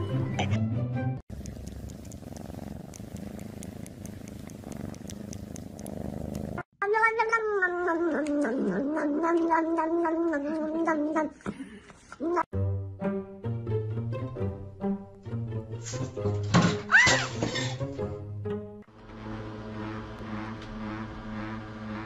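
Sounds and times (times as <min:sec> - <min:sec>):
cat purring: 0:01.3 - 0:06.7.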